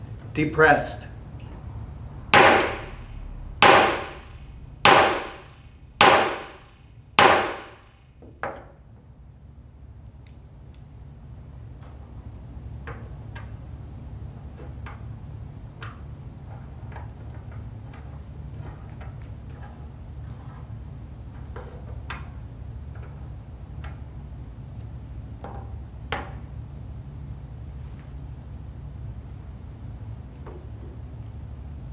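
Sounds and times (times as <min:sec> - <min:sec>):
wooden mallet strikes: 0:02.3 - 0:07.8.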